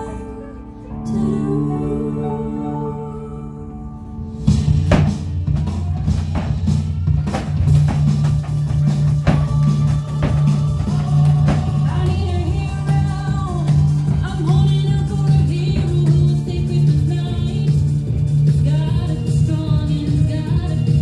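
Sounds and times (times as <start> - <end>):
person singing: 0.0 - 4.2, 7.1 - 18.0
rock music with drums: 4.4 - 21.0
heavy drum hits: 4.5 - 17.2.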